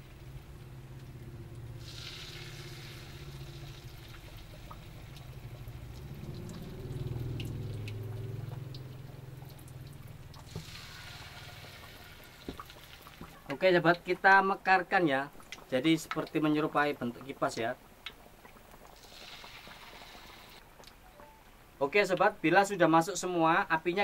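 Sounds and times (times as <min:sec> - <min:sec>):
food sizzling in hot oil: 0:01.6 - 0:09.6, 0:10.3 - 0:13.6, 0:18.8 - 0:20.6.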